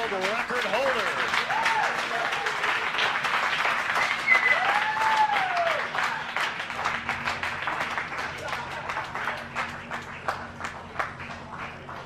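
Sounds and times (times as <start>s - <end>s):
people clapping and cheering: 0.0s - 12.0s
drawn-out whoop: 4.2s - 5.9s.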